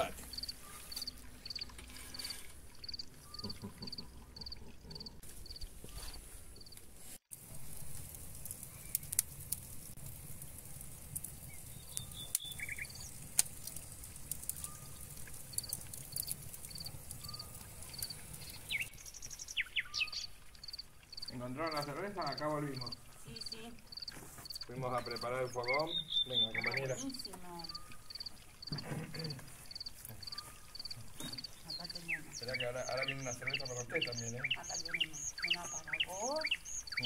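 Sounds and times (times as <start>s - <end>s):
crickets chirping: 0.0s - 6.8s, 15.5s - 18.6s, 20.0s - 25.8s, 29.7s - 37.0s
wood fire crackling: 0.0s - 37.0s.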